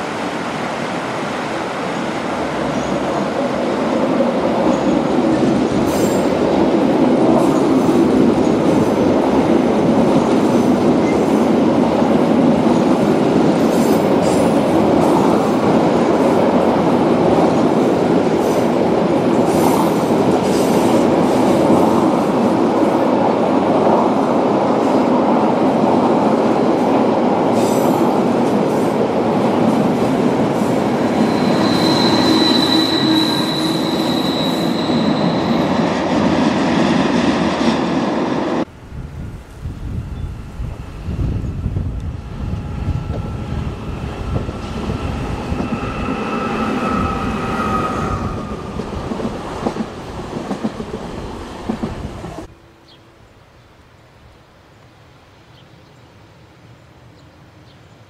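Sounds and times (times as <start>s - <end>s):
train wheels rumbling on rails: 0.0s - 52.5s
electric locomotive whine: 29.8s - 53.3s.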